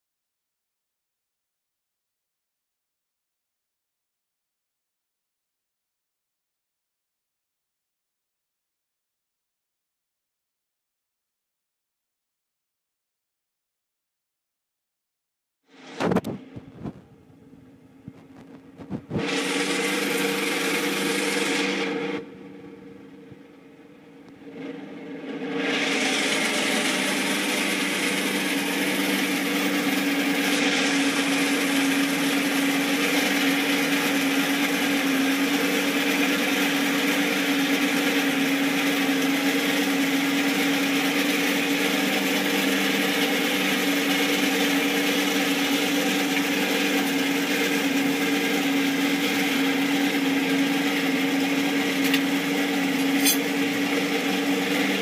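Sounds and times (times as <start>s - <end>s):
forge air blower whirring: 15.7s - 55.0s.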